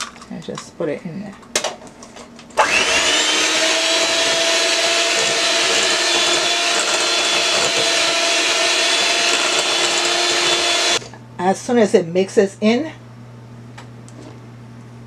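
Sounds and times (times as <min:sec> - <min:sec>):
electric hand mixer whirring: 0:02.6 - 0:11.0.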